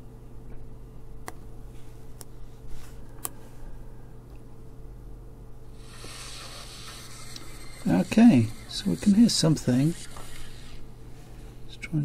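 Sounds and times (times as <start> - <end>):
radio static hiss: 5.8 - 10.9.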